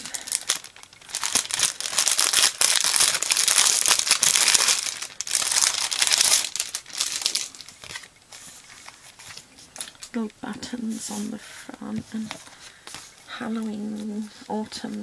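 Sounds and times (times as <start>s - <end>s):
plastic bag crinkling: 0.0s - 10.2s.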